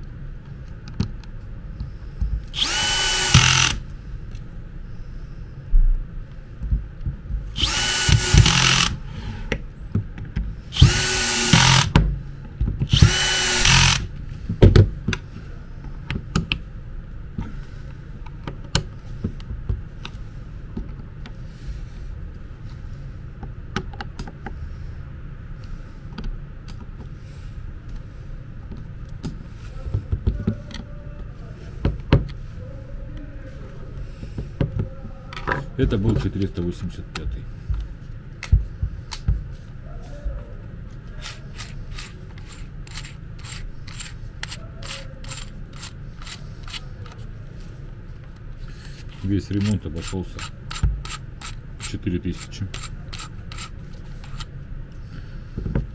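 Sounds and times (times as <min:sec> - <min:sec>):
cordless drill spinning: 0:02.5 - 0:03.9, 0:07.6 - 0:09.1, 0:10.7 - 0:12.0, 0:12.9 - 0:14.1, 0:41.2 - 0:44.6.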